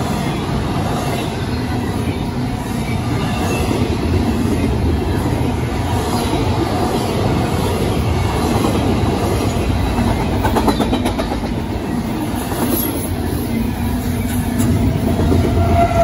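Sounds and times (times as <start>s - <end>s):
train cars rumbling on rails: 0.0s - 16.0s
clickety-clack over rail joints: 5.4s - 13.1s, 14.2s - 16.0s.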